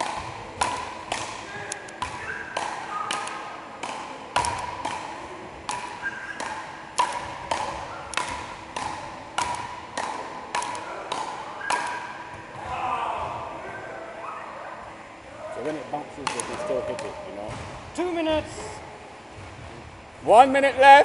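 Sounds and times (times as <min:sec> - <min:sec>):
paddles striking ball: 0:00.0 - 0:13.5, 0:16.2 - 0:17.9.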